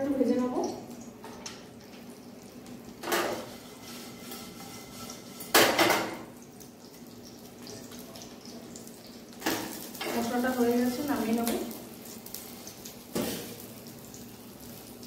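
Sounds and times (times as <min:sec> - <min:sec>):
metal pots clattering: 0:03.0 - 0:06.3.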